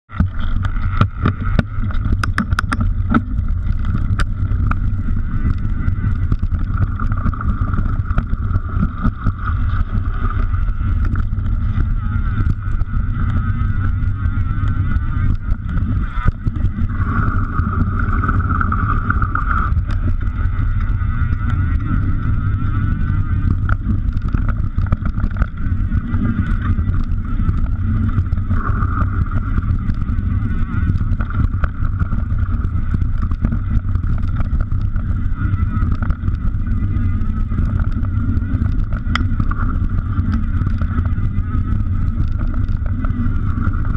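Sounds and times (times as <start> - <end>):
wind rumble on microphone: 0.0 - 43.9
bike rattles and knocks: 0.1 - 36.4
steady high buzz: 0.1 - 43.9.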